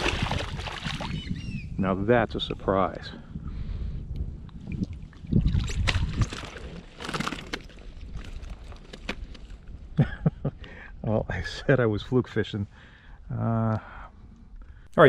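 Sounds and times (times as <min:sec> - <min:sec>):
water splashing: 0:00.0 - 0:01.2.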